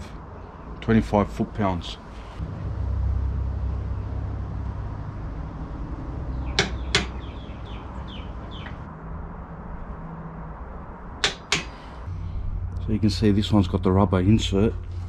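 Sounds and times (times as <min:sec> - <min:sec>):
low steady rumble: 0:02.4 - 0:11.2, 0:12.0 - 0:15.0
bird chirping: 0:06.2 - 0:08.9.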